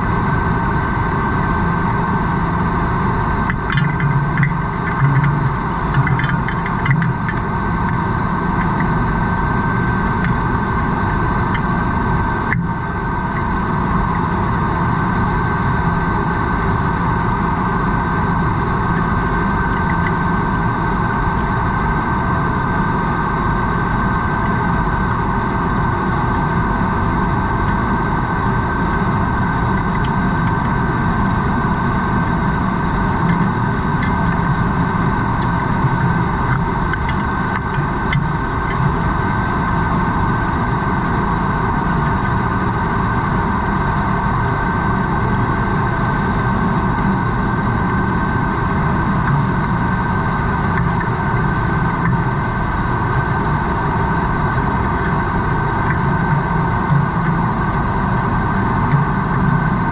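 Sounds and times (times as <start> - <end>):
constant whine: 0.0 - 59.9
underwater mechanical drone: 0.0 - 59.9
faint ticks: 3.5 - 7.4.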